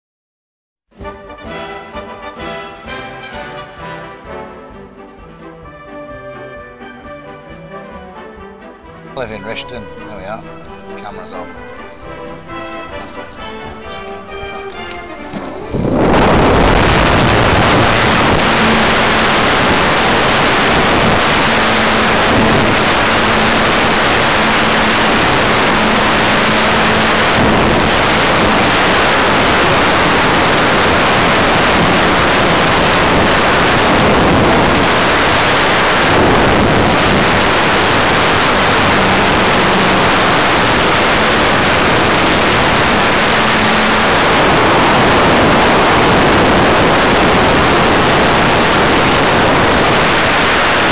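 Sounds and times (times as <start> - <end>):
propeller wash and airflow rush: 15.3 - 50.9.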